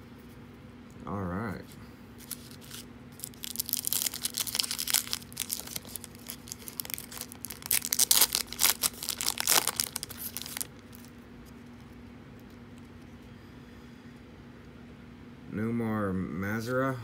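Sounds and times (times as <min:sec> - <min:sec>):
foil wrapper crinkling and tearing: 0:02.2 - 0:11.1.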